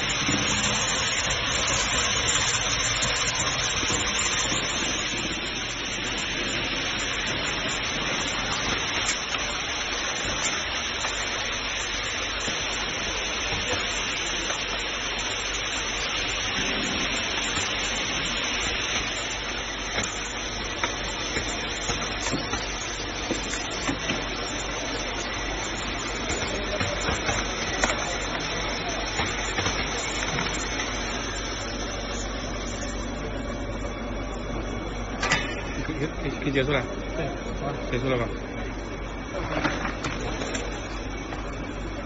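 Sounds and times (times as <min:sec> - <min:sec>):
seeds streaming through sorter: 0:00.0 - 0:31.8.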